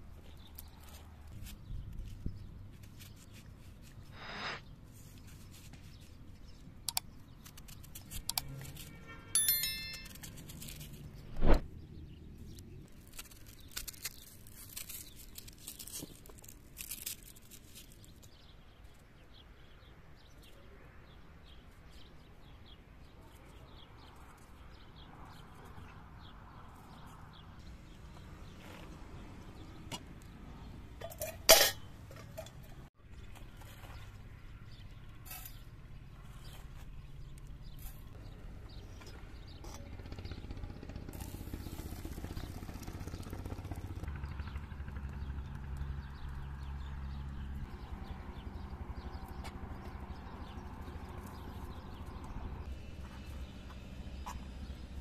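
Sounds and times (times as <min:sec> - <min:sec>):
ringing clink: 0:09.4 - 0:10.4.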